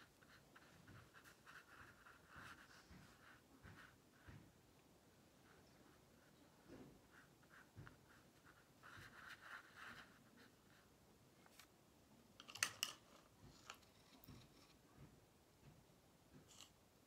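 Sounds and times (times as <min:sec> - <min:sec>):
paintbrush scratching on paper: 0:00.0 - 0:04.4, 0:05.5 - 0:10.9.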